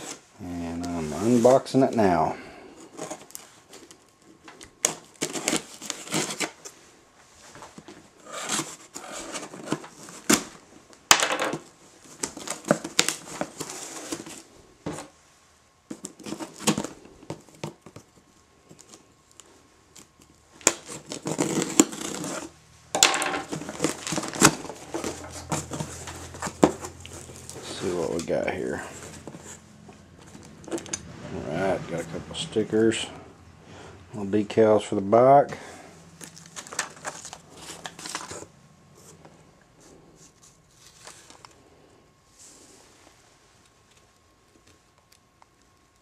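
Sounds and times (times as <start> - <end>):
cardboard scraping and rustling: 0.0 - 1.7, 2.8 - 6.8, 7.4 - 10.6, 12.0 - 15.2, 15.9 - 19.1, 20.0 - 22.6, 23.4 - 33.1, 36.2 - 41.4
tape tearing: 3.0 - 6.7, 8.2 - 10.6, 15.9 - 18.0, 18.7 - 22.6, 23.4 - 28.4, 36.2 - 38.5
knife cutting packing tape: 4.8 - 6.6, 8.2 - 10.5, 19.9 - 22.5.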